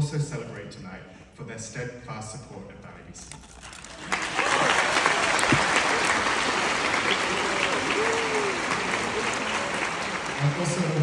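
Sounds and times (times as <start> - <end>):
audience clapping: 3.8 - 11.0.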